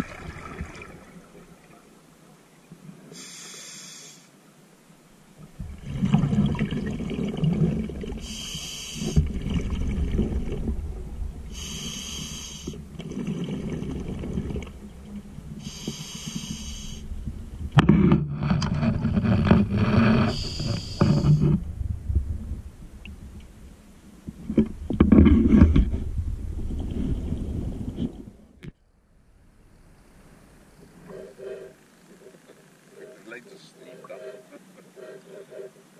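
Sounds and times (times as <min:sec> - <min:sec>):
exhaled air bubbling: 0:00.0 - 0:01.8, 0:05.4 - 0:17.8
diver inhaling through regulator: 0:03.2 - 0:04.3, 0:08.2 - 0:09.3, 0:11.5 - 0:12.8, 0:15.6 - 0:17.1, 0:20.1 - 0:21.4.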